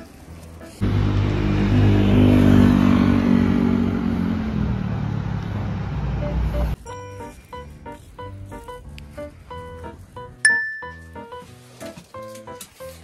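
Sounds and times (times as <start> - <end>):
tyre hiss and street noise: 0.0 - 10.5
vehicle engine running: 0.7 - 6.8
soft background music: 6.6 - 13.0.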